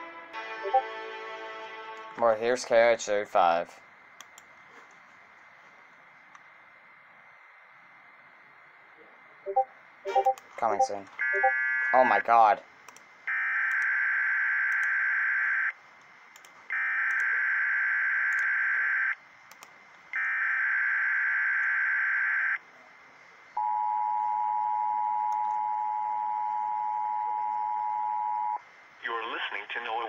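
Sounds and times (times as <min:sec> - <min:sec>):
steady alarm tone: 0:09.5 - 0:12.2.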